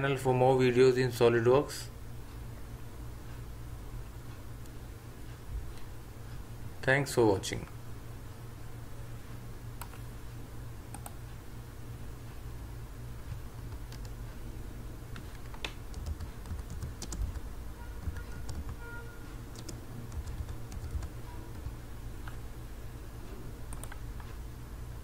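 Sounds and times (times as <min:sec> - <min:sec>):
steady low hum: 0:00.0 - 0:25.0
keyboard typing: 0:10.9 - 0:11.2, 0:13.3 - 0:14.2, 0:15.1 - 0:22.4, 0:23.7 - 0:24.4.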